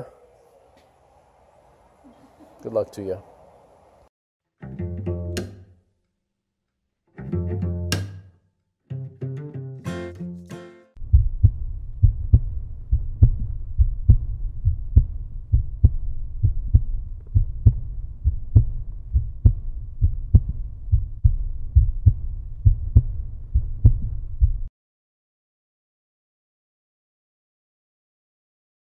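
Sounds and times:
low rumble: 0:11.0 - 0:24.7
muffled rhythmic thumping: 0:11.0 - 0:24.7.

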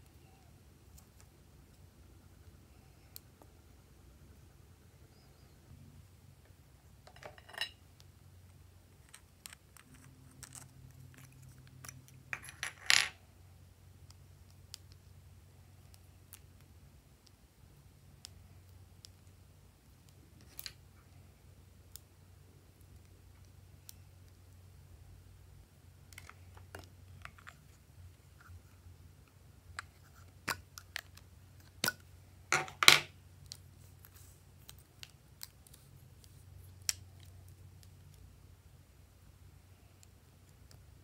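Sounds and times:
low steady hum: 0:00.0 - 0:41.0.

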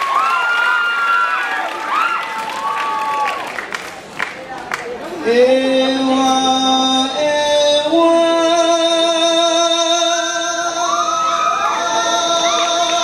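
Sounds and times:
person singing unaccompanied: 0:05.2 - 0:13.0.

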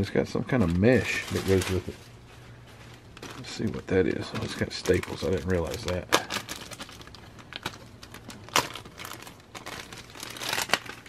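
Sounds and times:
plastic bag crinkling: 0:00.5 - 0:11.0.

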